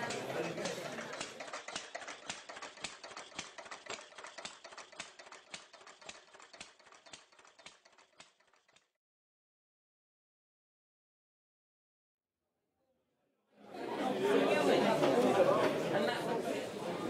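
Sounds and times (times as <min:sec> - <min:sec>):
model train wheels clicking: 0:00.0 - 0:08.9.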